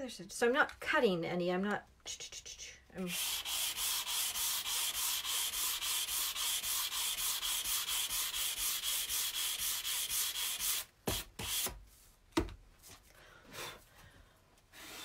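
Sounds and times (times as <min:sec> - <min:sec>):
sanding block scraping paper: 0:03.0 - 0:11.8.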